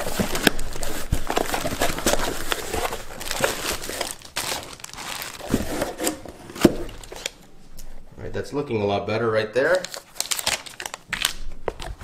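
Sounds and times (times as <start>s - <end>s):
cardboard box flaps rustling: 0.0s - 7.2s
plastic bag crinkling: 0.0s - 7.5s, 9.7s - 12.0s.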